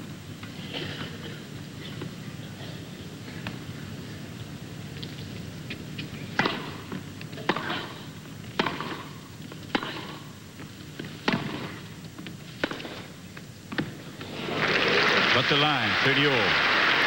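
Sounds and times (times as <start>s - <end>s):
tennis ball hit by rackets: 6.4s - 8.0s, 8.6s - 10.3s, 11.0s - 11.8s, 12.6s - 13.1s.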